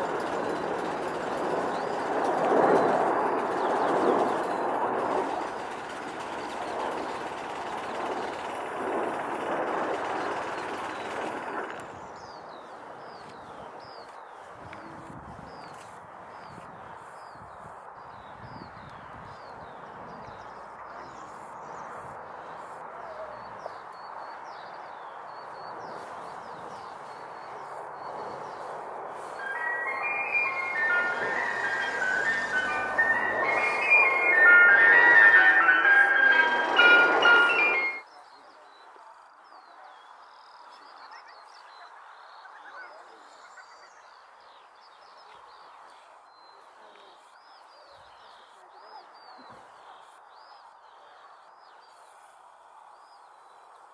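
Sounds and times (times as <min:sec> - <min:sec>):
distant jet noise: 0:00.0 - 0:15.0, 0:19.8 - 0:38.0
faint birdsong: 0:00.0 - 0:53.9
bird chirping: 0:23.2 - 0:38.6
jingle-like tune: 0:29.4 - 0:38.0.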